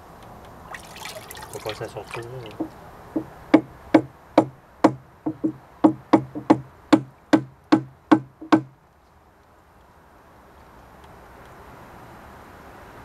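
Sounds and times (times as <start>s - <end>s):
sharp hollow knocks: 2.1s - 8.8s.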